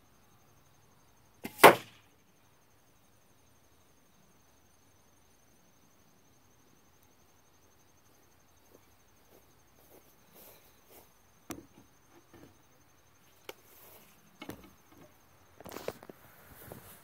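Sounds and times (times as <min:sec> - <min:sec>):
footsteps in grass: 0:08.7 - 0:11.2.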